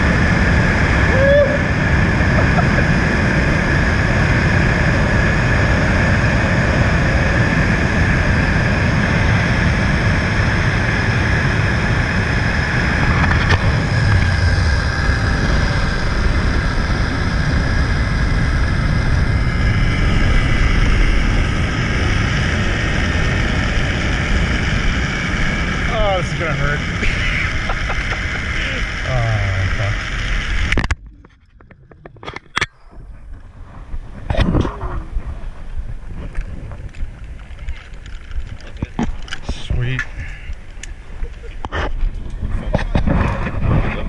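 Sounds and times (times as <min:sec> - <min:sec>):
wind rushing past microphone: 0:00.0 - 0:44.0
pulley wheels whining on cable: 0:34.2 - 0:39.6.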